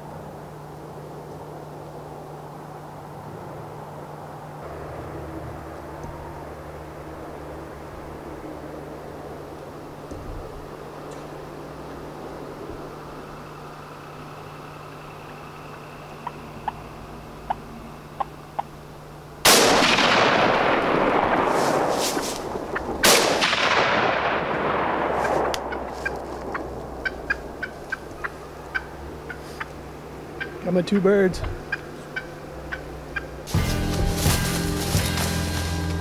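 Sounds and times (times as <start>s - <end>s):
turkeys clucking: 10.7s - 19.2s, 25.2s - 36.0s
turkey alarm putts: 12.8s - 19.3s, 25.3s - 34.6s
shotgun shots: 19.4s - 25.9s.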